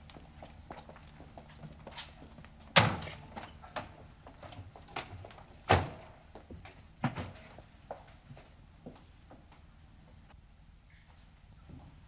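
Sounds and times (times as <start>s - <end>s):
door slams: 2.8s - 3.2s.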